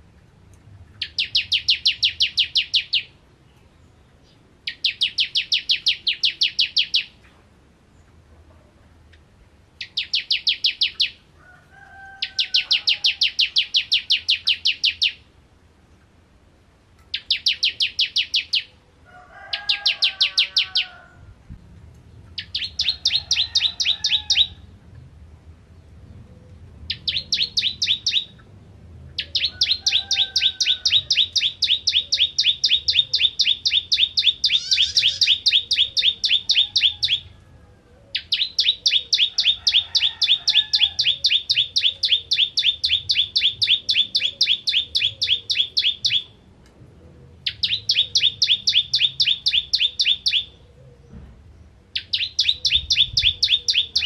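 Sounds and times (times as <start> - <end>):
bird singing rapid sharp notes: 1.0 - 7.2, 9.8 - 11.2, 12.5 - 15.3, 17.1 - 18.8, 26.9 - 28.5, 29.2 - 37.2, 38.1 - 40.4, 41.0 - 46.4, 47.5 - 50.6, 51.9 - 54.0.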